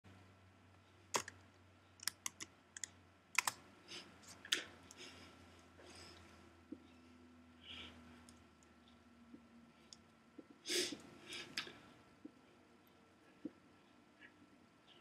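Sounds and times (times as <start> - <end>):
faint low hum: 0.1 - 15.0
keyboard and mouse clicks: 1.2 - 1.4, 2.0 - 3.6.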